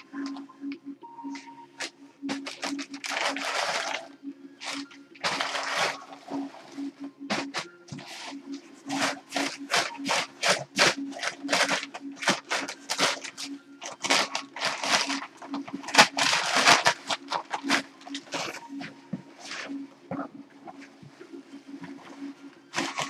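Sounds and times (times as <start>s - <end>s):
packing paper rustling: 1.8s - 6.6s, 7.3s - 19.7s, 22.7s - 23.0s.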